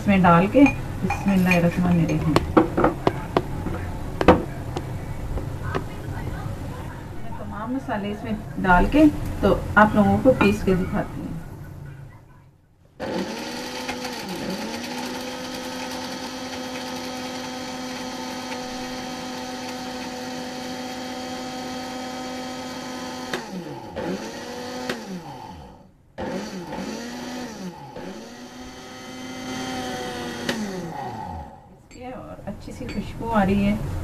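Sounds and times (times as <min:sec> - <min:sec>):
mixer grinder motor whining: 0:13.0 - 0:31.7.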